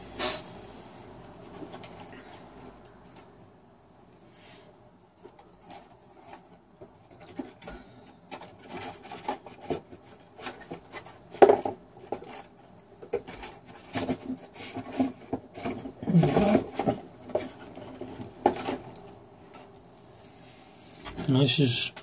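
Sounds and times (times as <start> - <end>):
paint pots clattering: 13.2 - 18.9.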